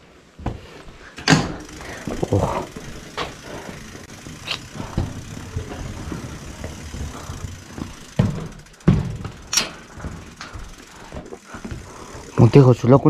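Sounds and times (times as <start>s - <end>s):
bike knocking and rattling: 0.3s - 13.0s
loud thumps: 7.4s - 10.3s.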